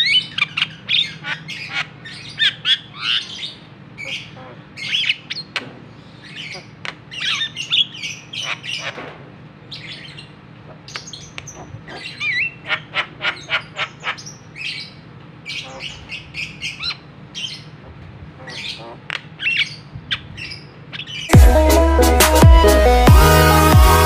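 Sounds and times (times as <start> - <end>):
bird squawking and chattering: 0.0 - 5.6, 6.2 - 9.0, 9.7 - 17.8, 18.4 - 21.4
loud electronic music: 21.3 - 24.0.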